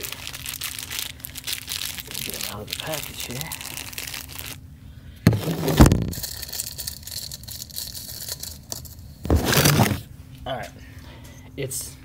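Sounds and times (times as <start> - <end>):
plastic blister pack crinkling: 0.0 - 4.6, 5.3 - 8.8.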